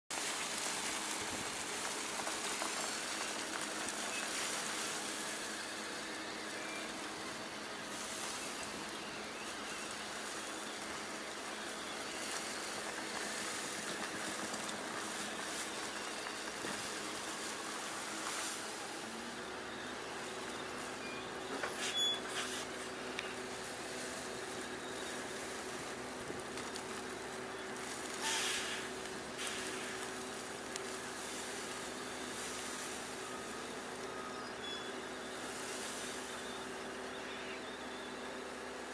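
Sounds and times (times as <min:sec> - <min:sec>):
wood chips pouring onto a pile: 0:00.2 - 0:06.5, 0:07.5 - 0:19.3, 0:21.7 - 0:33.8
faint machine hum: 0:00.2 - 0:38.9.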